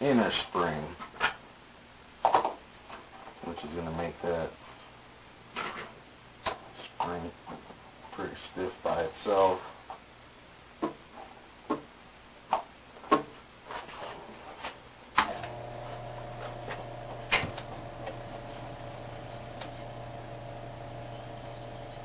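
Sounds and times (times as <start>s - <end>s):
steady mechanical hum: 14.8s - 22.0s.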